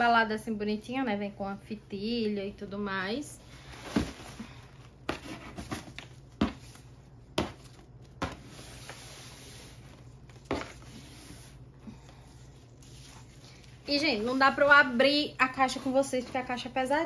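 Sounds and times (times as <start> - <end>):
ribbon rustling: 4.0 - 16.6.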